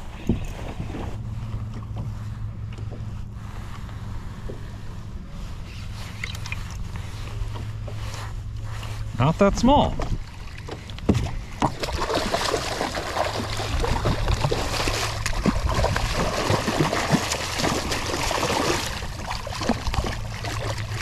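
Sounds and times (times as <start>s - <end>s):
fish splashing in water: 10.2s - 21.0s.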